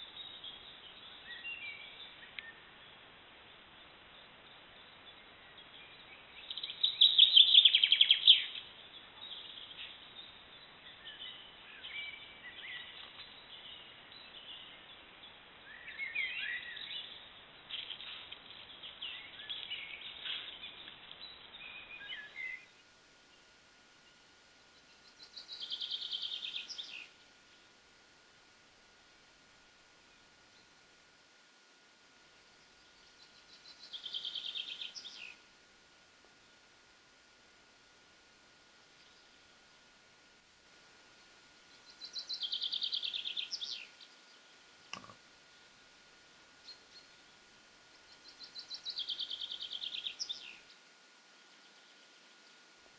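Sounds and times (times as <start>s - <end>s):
faint steady tone: 0.0s - 52.9s
birds singing and calling: 4.2s - 27.7s, 32.5s - 35.4s, 41.1s - 45.7s, 46.5s - 52.7s
bird trill: 24.8s - 27.1s, 33.0s - 35.4s.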